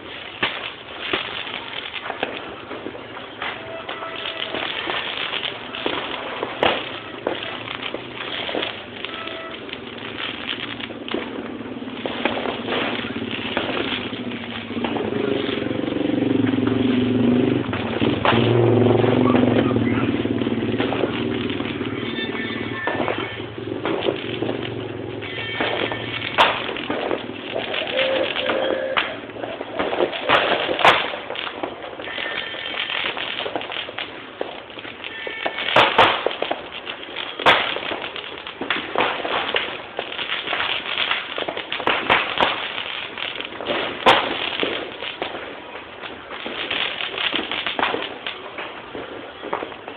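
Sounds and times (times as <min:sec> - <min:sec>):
firecrackers crackling: 0:00.0 - 0:49.9
sharp bangs: 0:00.0 - 0:49.9
engine revving: 0:11.4 - 0:22.2.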